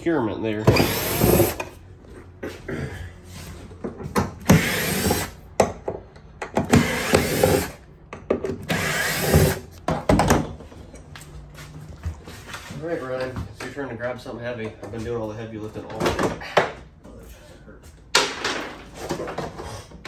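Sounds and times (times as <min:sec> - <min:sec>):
cordless power drill running: 0:04.4 - 0:05.4, 0:06.7 - 0:07.8, 0:08.6 - 0:09.6.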